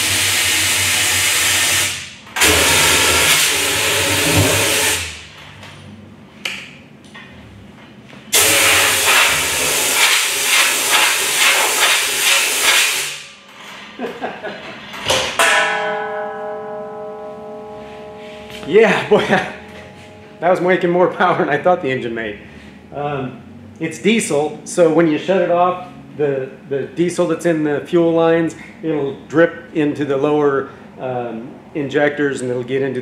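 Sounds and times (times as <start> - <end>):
metal clanks: 13.5 - 20.9.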